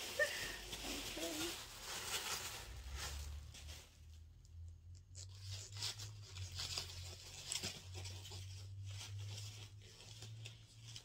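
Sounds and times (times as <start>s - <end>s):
packaging rustling and crinkling: 0.0s - 4.6s.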